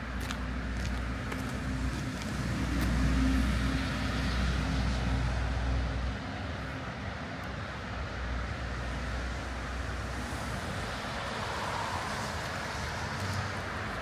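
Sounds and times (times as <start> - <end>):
car passing: 8.0 - 14.0.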